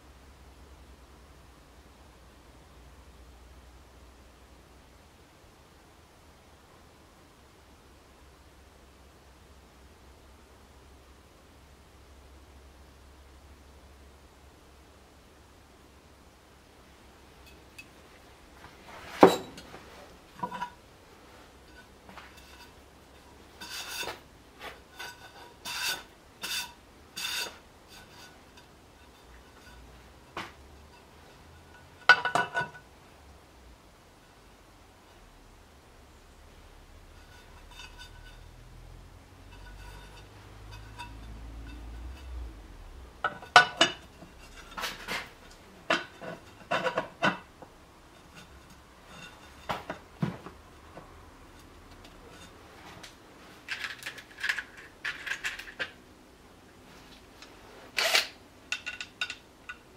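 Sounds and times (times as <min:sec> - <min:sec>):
metal cover knocking and clinking: 0:32.1 - 0:32.8.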